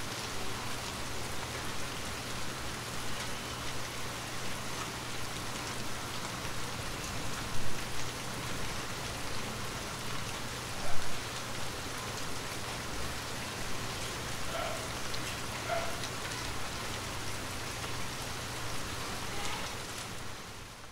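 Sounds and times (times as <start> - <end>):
louder rain drops: 0.0 - 20.9
rain falling on leaves: 0.0 - 20.9.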